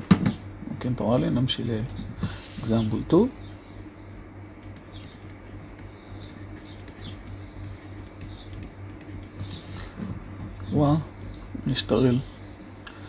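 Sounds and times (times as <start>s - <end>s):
low electrical hum: 0.0s - 13.0s
computer mouse and keyboard clicks: 4.4s - 9.6s.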